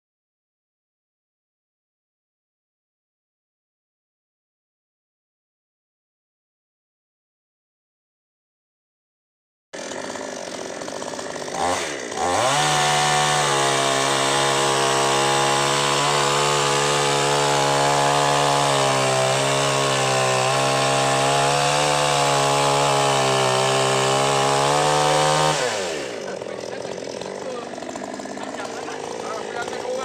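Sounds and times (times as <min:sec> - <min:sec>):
chainsaw running: 0:09.8 - 0:30.0.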